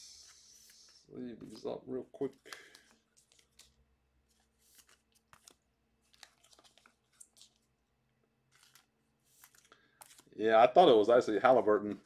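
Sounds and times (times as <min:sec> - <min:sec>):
cards clicking and scraping: 0:02.3 - 0:07.8, 0:08.4 - 0:10.3.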